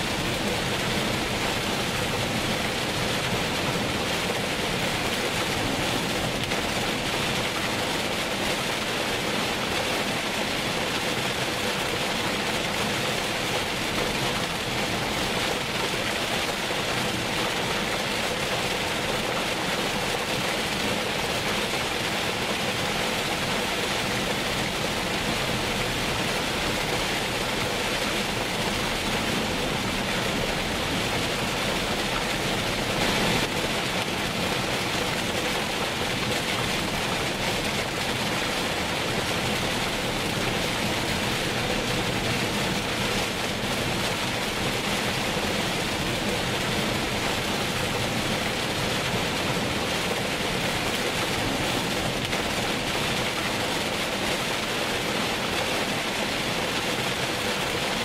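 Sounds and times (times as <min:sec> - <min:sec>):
heavy rain on a moving car: 0:00.0 - 0:58.0.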